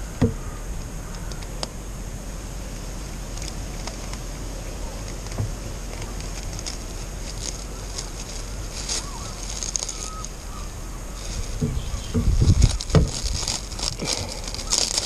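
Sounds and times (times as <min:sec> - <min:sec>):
low thumps: 0:00.0 - 0:00.9, 0:11.4 - 0:14.1
cling film crinkling: 0:03.2 - 0:15.0.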